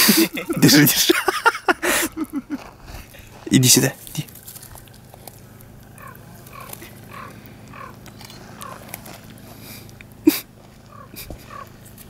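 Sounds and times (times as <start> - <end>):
squirrel gnawing: 3.1 - 10.2.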